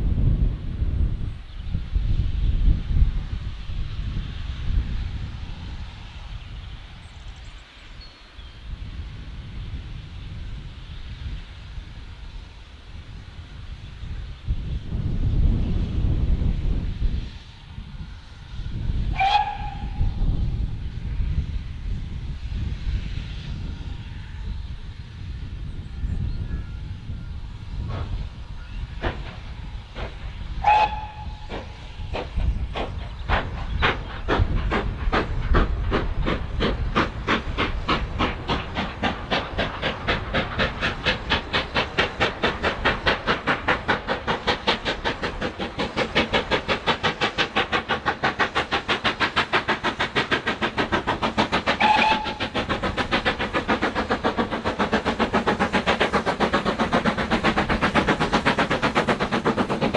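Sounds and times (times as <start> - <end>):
steam locomotive exhaust beats: 0.0 - 59.9
steam whistle: 19.1 - 20.1, 30.6 - 31.5, 51.8 - 52.6.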